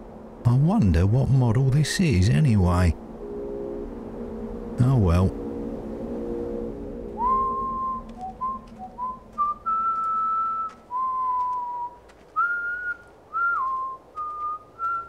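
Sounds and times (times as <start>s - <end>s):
man whistling a tune: 7.2s - 15.0s.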